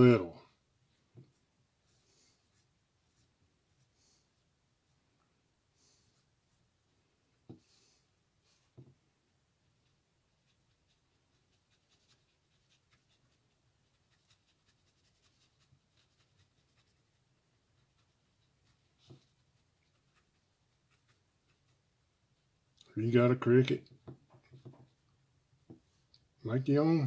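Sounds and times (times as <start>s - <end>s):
wooden stick scratching stencil: 9.6s - 22.0s, 23.8s - 25.1s.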